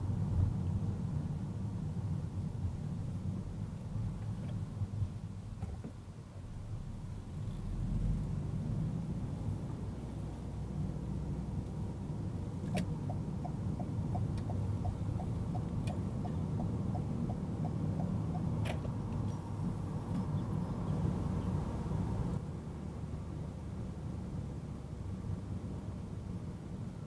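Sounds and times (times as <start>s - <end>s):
car road and engine rumble: 0.0s - 27.0s
turn signal ticking: 12.6s - 21.6s.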